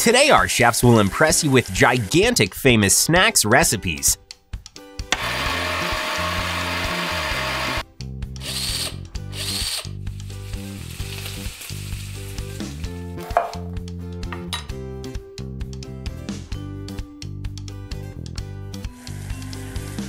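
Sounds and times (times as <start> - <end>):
background music: 0.0 - 20.0
blender motor running: 5.1 - 7.8, 8.4 - 9.9, 18.9 - 20.0
cordless drill whirring: 5.1 - 7.8, 8.4 - 10.0.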